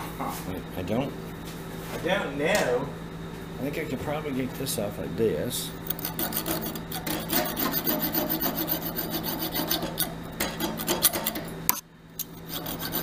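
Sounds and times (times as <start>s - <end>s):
metal wire scraping spinning wood: 5.8s - 11.5s, 12.2s - 13.0s.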